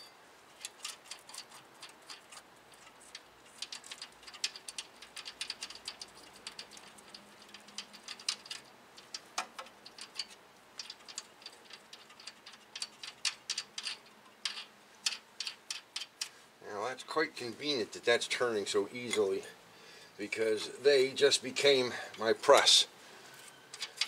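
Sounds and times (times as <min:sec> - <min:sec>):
hand ratchet clicking: 0:00.6 - 0:16.3.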